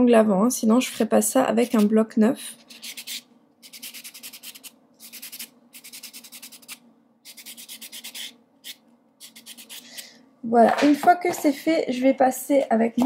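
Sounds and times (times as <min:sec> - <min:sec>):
nail buffer rasping on fingernails: 0:01.6 - 0:01.9, 0:02.6 - 0:10.1.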